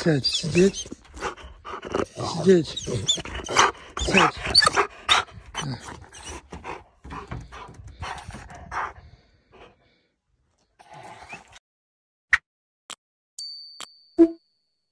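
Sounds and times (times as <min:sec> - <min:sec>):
dog panting: 0:00.0 - 0:10.1.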